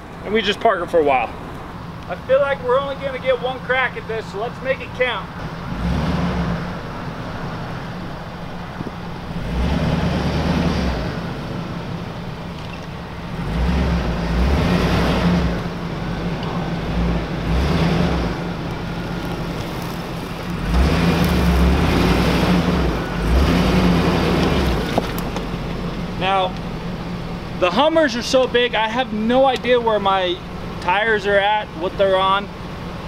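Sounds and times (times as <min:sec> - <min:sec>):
truck engine revving: 0:00.0 - 0:33.0.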